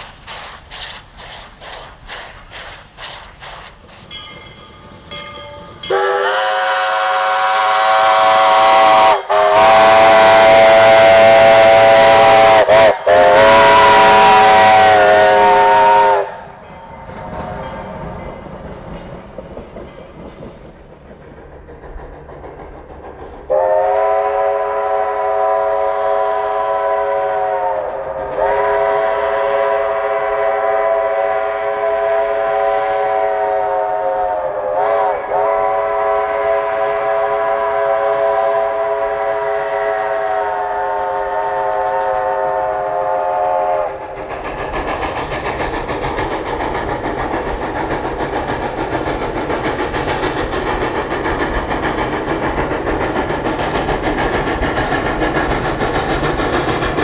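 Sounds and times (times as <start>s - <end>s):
steam locomotive chime whistle: 4.0s - 19.2s, 23.5s - 43.9s.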